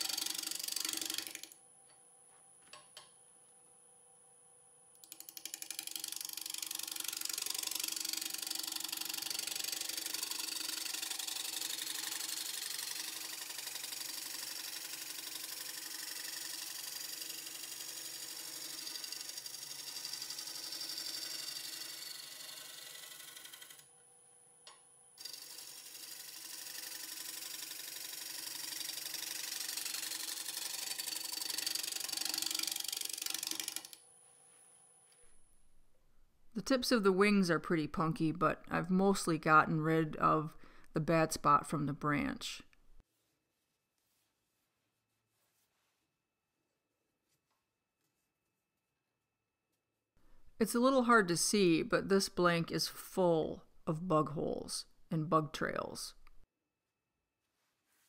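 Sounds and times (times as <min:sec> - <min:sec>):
gouge chattering on wood lathe: 0:00.0 - 0:01.6, 0:05.0 - 0:23.8, 0:25.2 - 0:34.0.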